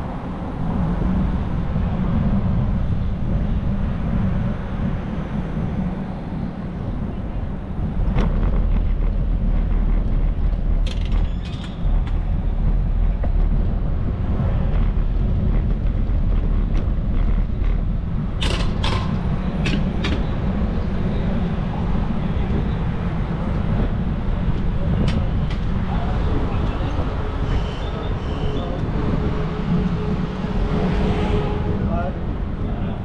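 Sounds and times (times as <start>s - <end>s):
street traffic noise: 0.0s - 33.0s
wind rumble on microphone: 0.0s - 33.0s
sharp clicks and rattles: 8.0s - 20.6s.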